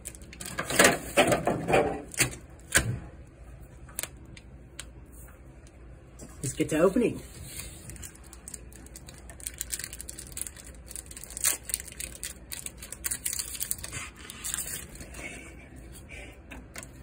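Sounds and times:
foil wrapper crinkling and tearing: 0.0 - 0.7, 7.3 - 15.2.

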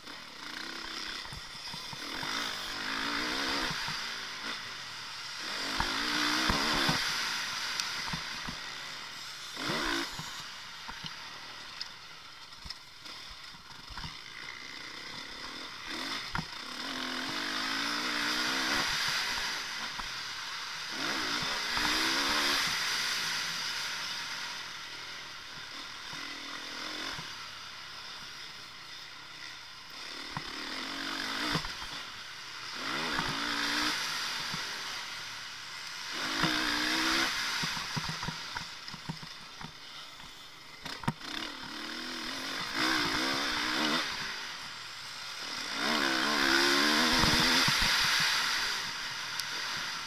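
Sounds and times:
motocross bike engine revving: 0.0 - 50.0.

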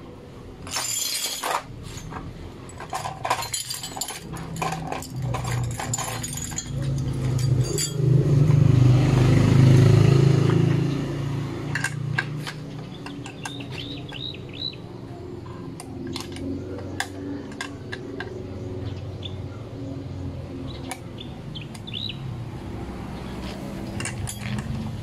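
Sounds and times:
metal plate clinking: 0.6 - 8.1.

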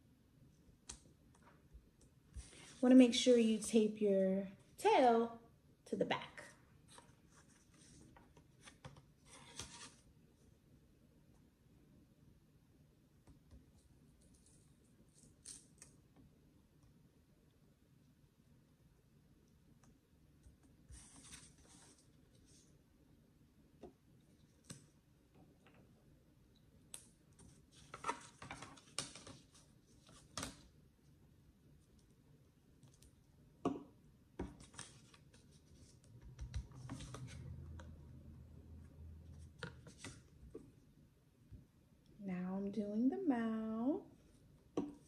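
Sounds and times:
paper and tape rustling: 6.9 - 10.0.

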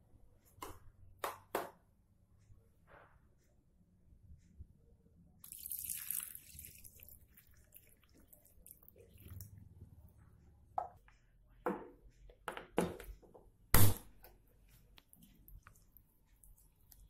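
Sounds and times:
water poured into hot pan: 5.4 - 8.8
pan crackling and bubbling: 5.4 - 9.8, 14.9 - 17.0.

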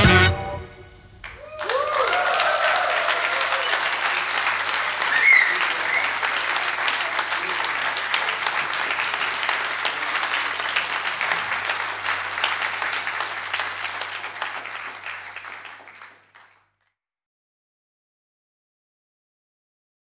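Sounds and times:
audience applauding: 1.2 - 16.8.

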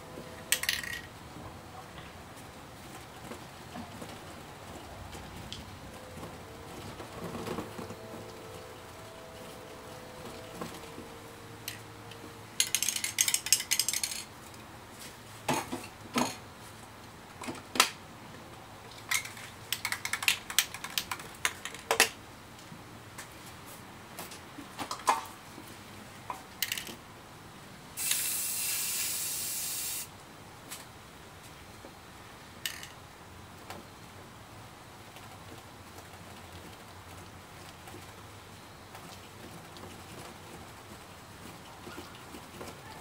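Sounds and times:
spray can rattling: 0.5 - 1.1, 12.6 - 14.3, 19.1 - 21.9, 28.0 - 30.1
spray paint hissing: 28.0 - 30.1.

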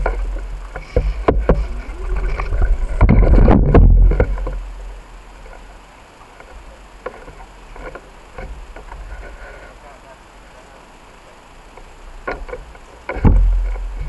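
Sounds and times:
deep rumble: 0.0 - 5.9
bicycle rolling on pavement: 0.0 - 14.0
sharp knocks: 0.8 - 4.6, 12.2 - 13.8.

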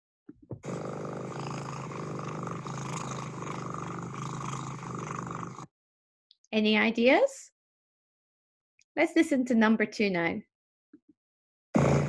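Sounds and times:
cat purring: 0.6 - 5.6.

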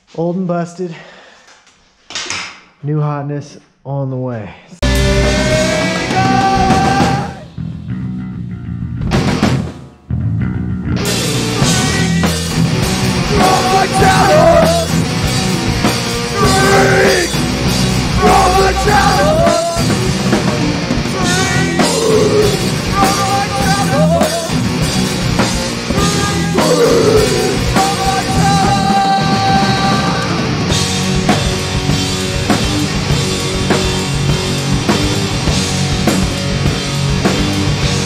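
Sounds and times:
drum kit beat: 4.8 - 8.1, 11.0 - 38.0
loud rock music: 4.8 - 38.0.

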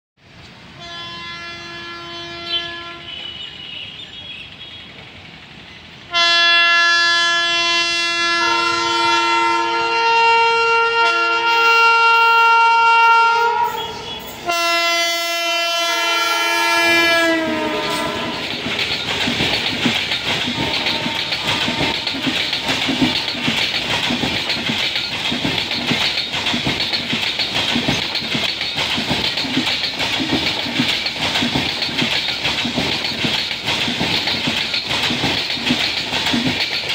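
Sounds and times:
locomotive horn blasts: 0.8 - 4.9, 6.1 - 18.4, 20.6 - 22.2
train wheels clattering over rail joints: 16.5 - 36.9.

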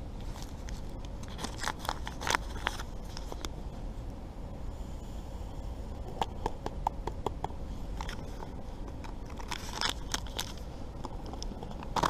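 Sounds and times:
packet crinkling: 0.3 - 3.5, 8.0 - 12.0.

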